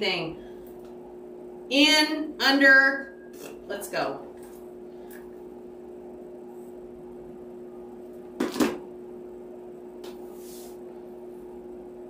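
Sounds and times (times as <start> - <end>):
steady background hum: 0.0 - 12.0.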